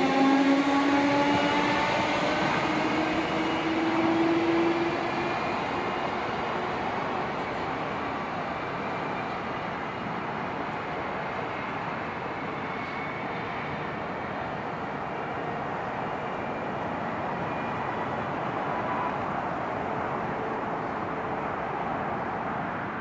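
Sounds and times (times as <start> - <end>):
electric train motors whining: 0.0 - 7.9
train running noise: 0.0 - 23.0.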